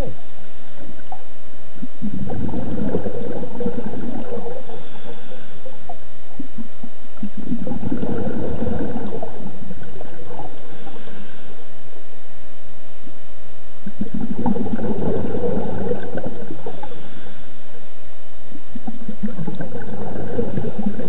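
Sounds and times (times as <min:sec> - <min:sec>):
diver exhaling bubbles underwater: 0:01.8 - 0:11.1, 0:13.8 - 0:17.0, 0:18.9 - 0:21.0.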